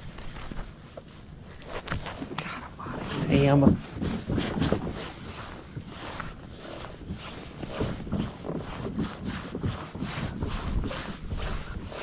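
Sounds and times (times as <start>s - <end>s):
small knocks and rubs: 0.1s - 12.0s
wind buffeting microphone: 2.7s - 12.0s.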